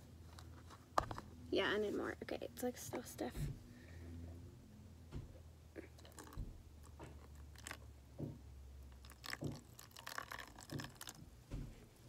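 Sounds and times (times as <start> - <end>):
soft crackles and splats: 5.8 - 11.7
water poured onto powder: 8.9 - 11.2.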